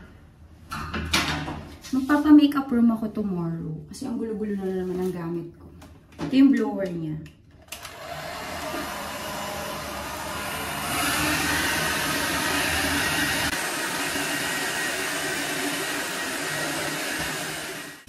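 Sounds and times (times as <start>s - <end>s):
hair dryer blowing: 7.7s - 18.0s.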